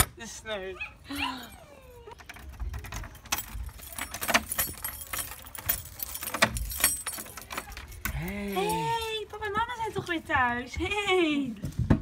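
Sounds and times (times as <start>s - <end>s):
keys jangling: 1.9s - 9.3s
metallic lock clicks: 2.1s - 8.3s.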